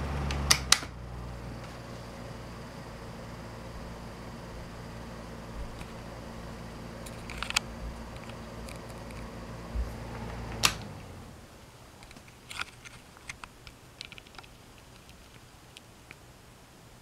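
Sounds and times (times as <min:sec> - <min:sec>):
fan motor humming: 0:00.0 - 0:12.7
fan switch click: 0:00.2 - 0:00.9, 0:10.2 - 0:11.1.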